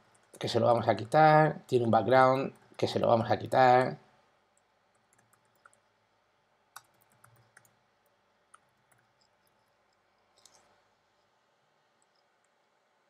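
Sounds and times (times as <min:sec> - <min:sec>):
keyboard typing clicks: 0:04.6 - 0:05.8, 0:06.7 - 0:10.7.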